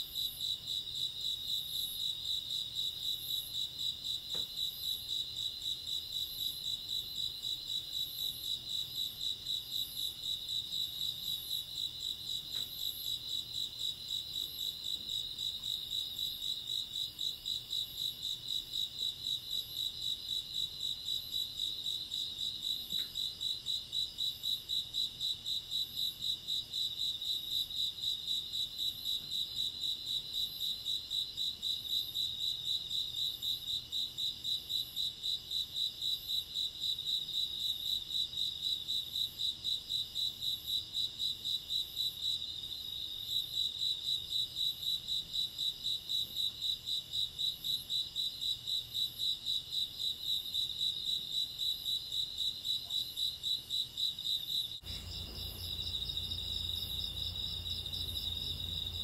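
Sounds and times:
higher insect chirping: 52.9s - 59.0s
insects trilling: 54.8s - 59.0s.

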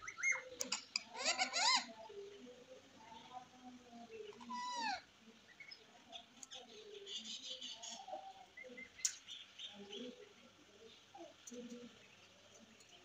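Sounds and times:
parakeet chirping and chattering: 0.1s - 2.0s.

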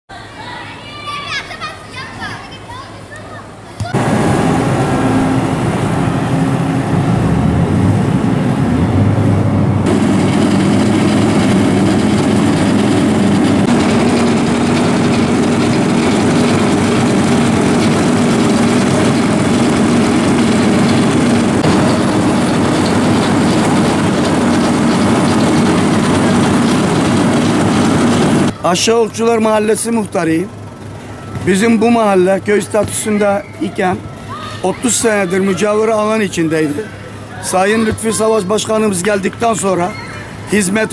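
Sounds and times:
asphalt paver running: 3.9s - 28.6s
road roller engine running: 3.9s - 28.8s, 30.2s - 32.5s
dump truck tipping asphalt: 9.8s - 28.5s.

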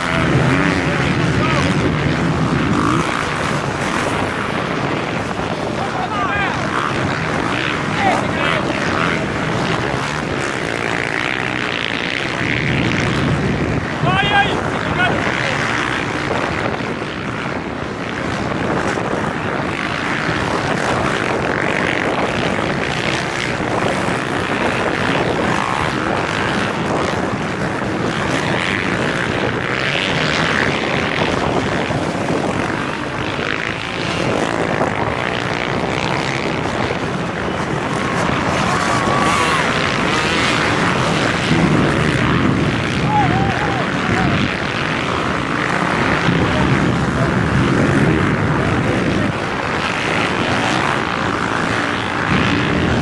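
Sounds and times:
off-road motorcycle engines droning: 0.0s - 53.0s.

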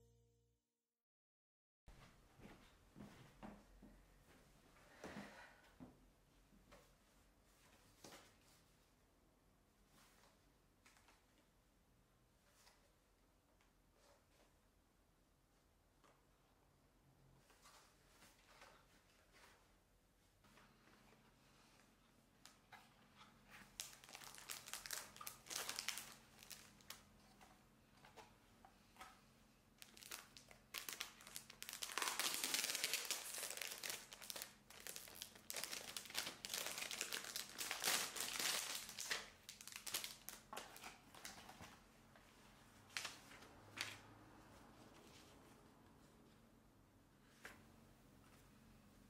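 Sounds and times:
cardboard packaging rustling: 23.5s - 28.2s, 29.8s - 41.8s
plastic bag crinkling: 23.6s - 27.1s, 29.8s - 41.4s.

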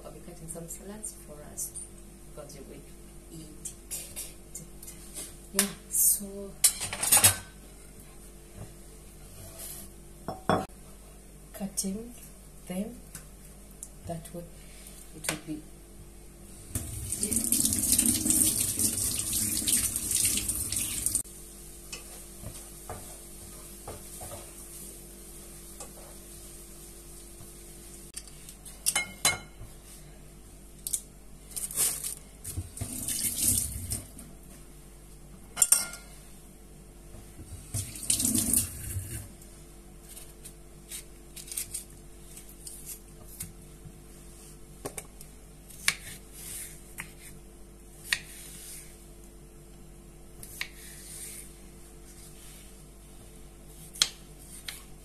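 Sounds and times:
kitchen tap running: 16.8s - 21.2s, 32.8s - 34.1s, 37.7s - 39.2s.

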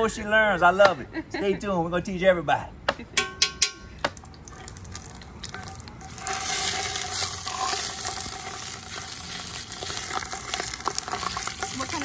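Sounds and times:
sausage sizzling in hot oil: 4.4s - 12.0s.

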